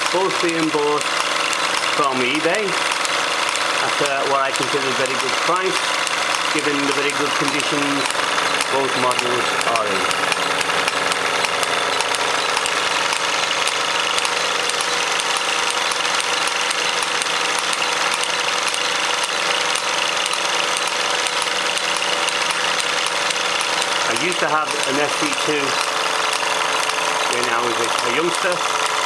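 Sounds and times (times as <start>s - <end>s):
toy steam engine exhaust beats: 0.0s - 29.0s.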